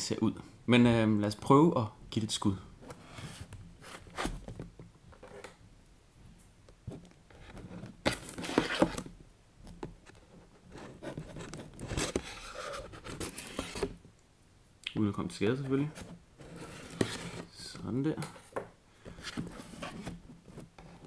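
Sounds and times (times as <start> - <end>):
cardboard box scraping: 7.4 - 9.0, 10.7 - 14.0, 15.9 - 17.6, 19.2 - 21.0.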